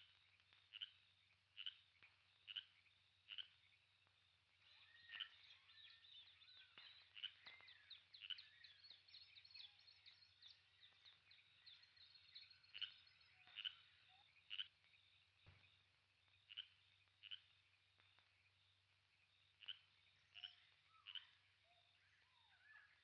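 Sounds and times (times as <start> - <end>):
animal chirps: 4.7 - 6.0, 19.6 - 21.4.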